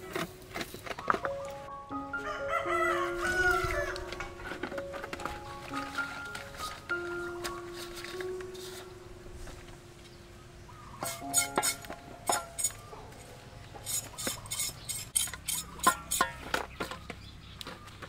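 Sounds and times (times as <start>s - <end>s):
knife clinking in steel basin: 11.0s - 12.8s, 13.8s - 16.5s.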